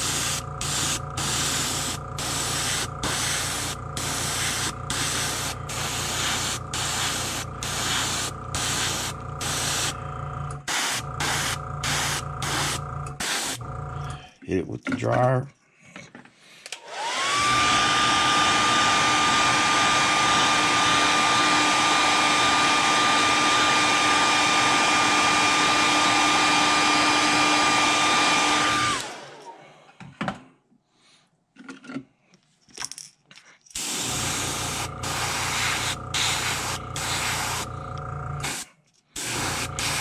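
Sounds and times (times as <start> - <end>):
airbrush spraying hiss: 0.0 - 10.0, 10.7 - 13.6, 33.8 - 37.7, 38.4 - 40.0
hair dryer blowing: 0.0 - 10.0, 10.6 - 13.6, 16.7 - 29.6, 33.8 - 40.0.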